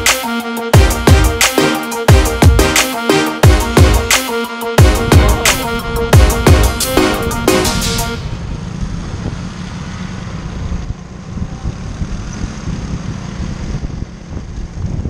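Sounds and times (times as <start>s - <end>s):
electronic music with beat: 0.0s - 8.2s
motor scooter running: 8.2s - 15.0s
wind rumbling on microphone: 8.2s - 15.0s.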